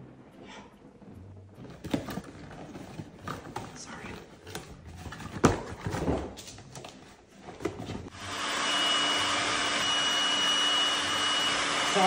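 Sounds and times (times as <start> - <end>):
electric air pump whining: 8.1 - 12.0.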